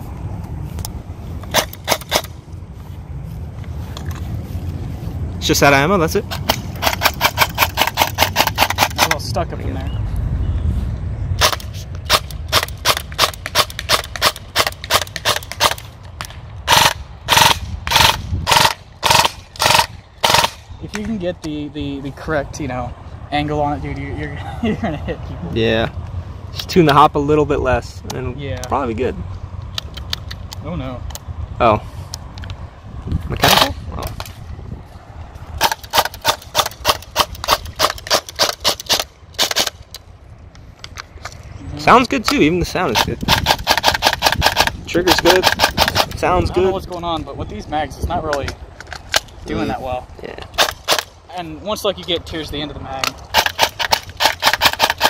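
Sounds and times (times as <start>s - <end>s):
airsoft rifle firing: 16.7s - 20.6s, 53.3s - 55.0s.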